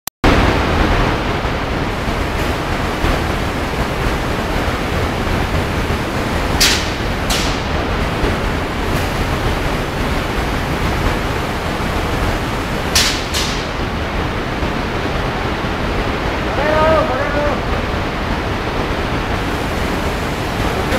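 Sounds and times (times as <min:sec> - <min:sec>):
paint sprayer hissing: 0:01.9 - 0:13.8.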